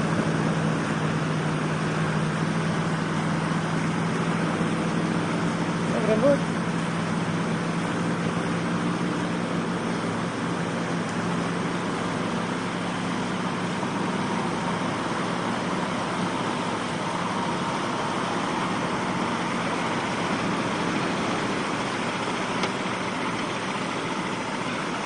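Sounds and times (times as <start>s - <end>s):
truck engine running: 0.0s - 25.0s
truck wading through water: 0.0s - 25.0s.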